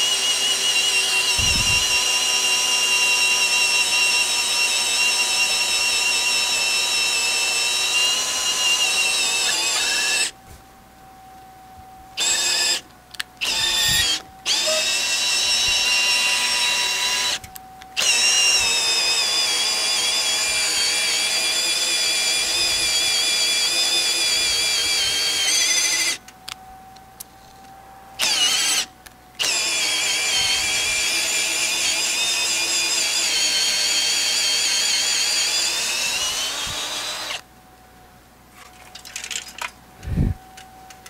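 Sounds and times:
cordless drill boring into wood: 0.0 - 10.4, 12.2 - 12.8, 13.4 - 17.4, 18.0 - 26.2, 28.2 - 37.4.

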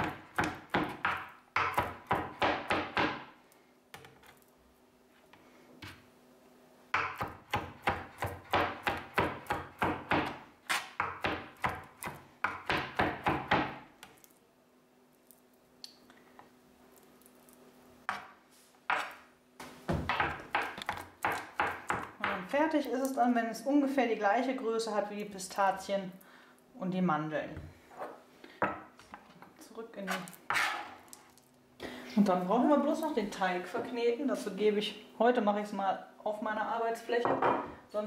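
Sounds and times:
knife chopping on plastic board: 0.0 - 3.3, 7.0 - 13.9, 19.9 - 22.5.

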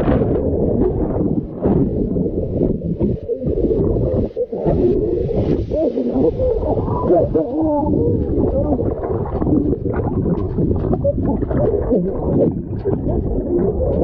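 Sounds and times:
muffled churning water and bubbles: 0.0 - 14.0
warbling pitch glides: 0.0 - 14.0
small underwater clicks: 7.8 - 14.0.

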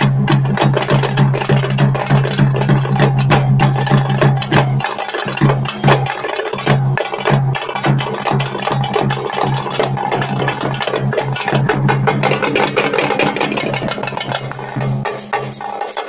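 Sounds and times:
bass drum: 0.0 - 15.6
frame drums beaten with sticks: 0.0 - 16.0.

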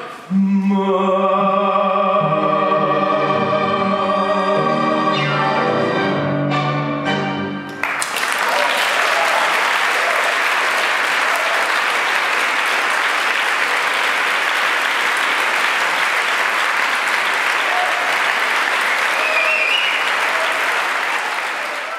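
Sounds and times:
audience applause: 7.7 - 21.9.

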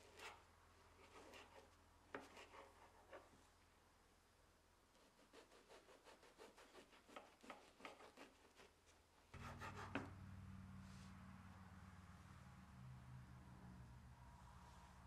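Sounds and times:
knife sawing through bread: 0.0 - 0.4, 1.0 - 3.1, 5.0 - 8.8, 9.4 - 10.1
low steady hum: 9.3 - 15.0.

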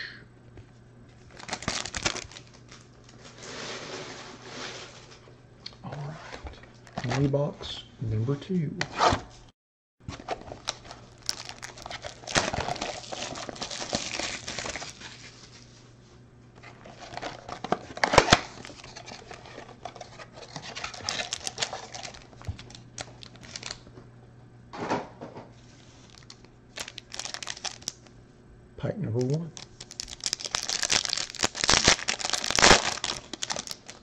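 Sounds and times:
packaging crinkling and tearing: 1.2 - 3.8, 10.1 - 15.7, 16.6 - 23.9, 25.8 - 28.1, 29.2 - 34.0
foil packs rustling: 1.2 - 5.2, 10.0 - 15.8, 16.6 - 23.8, 25.6 - 28.1, 29.2 - 34.0.

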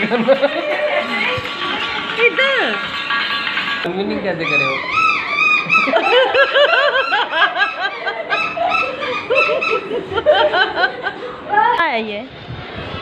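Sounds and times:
people laughing: 0.0 - 1.8, 5.4 - 11.8.

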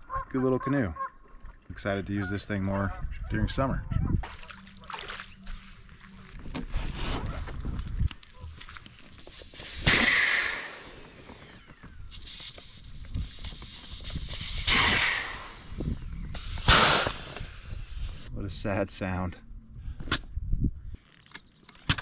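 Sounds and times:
air hissing out of canoe: 9.2 - 10.9, 12.1 - 18.3.

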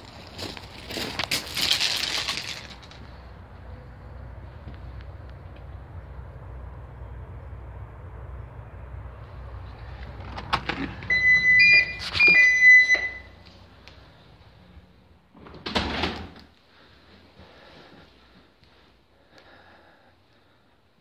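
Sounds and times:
electronic keypad beeps: 11.1 - 13.4
door swinging shut: 15.4 - 16.4.

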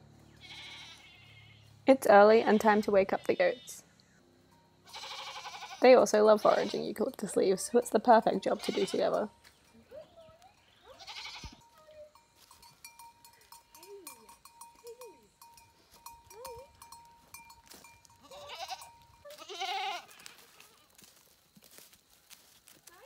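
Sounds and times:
goats bleating: 0.4 - 1.7, 4.8 - 7.0, 8.3 - 9.3, 10.8 - 11.7, 18.2 - 21.0
footsteps in dry leaves: 17.2 - 23.0.

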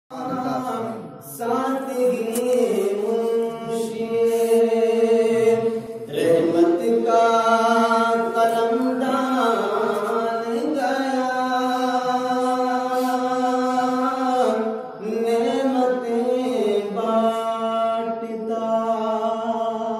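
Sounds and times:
man chanting into a microphone: 0.1 - 19.9.

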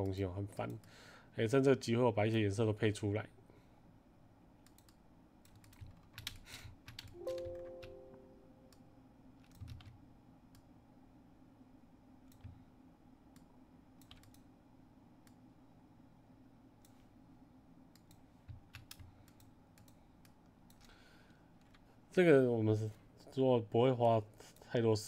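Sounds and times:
faint low hum: 0.0 - 25.0
computer clicks: 4.6 - 8.0, 13.4 - 14.5.

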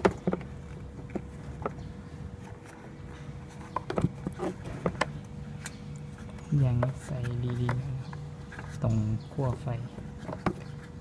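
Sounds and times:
rubber cover clicking and knocking: 0.0 - 1.9, 3.6 - 5.3, 10.0 - 11.0
steady low hum: 0.0 - 11.0.

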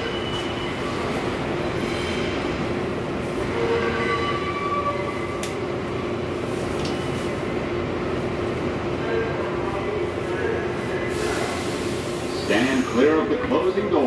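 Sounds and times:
subway car equipment hum: 0.0 - 14.0.

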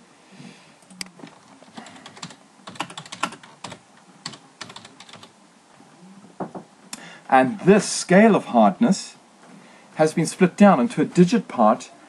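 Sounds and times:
keyboard typing: 1.8 - 5.3.

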